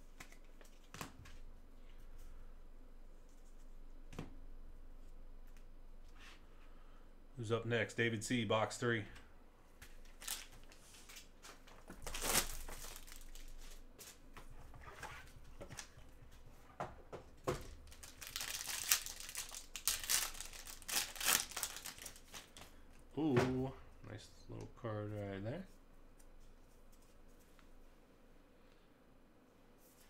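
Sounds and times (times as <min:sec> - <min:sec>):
foil pack crinkling and tearing: 0:10.1 - 0:13.8, 0:17.8 - 0:22.7.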